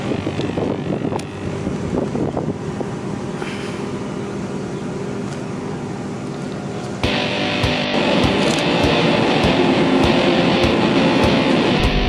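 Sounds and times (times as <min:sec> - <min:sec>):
wind buffeting microphone: 0:00.0 - 0:03.0
road roller engine running: 0:00.0 - 0:12.0.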